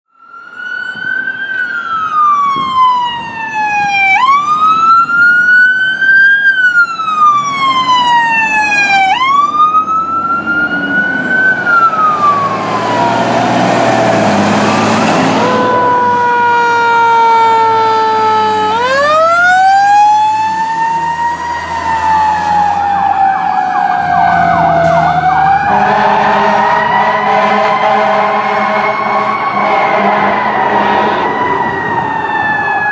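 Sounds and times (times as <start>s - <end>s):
electronic siren wailing: 0.1s - 32.9s
diesel engine rumble: 9.3s - 27.3s.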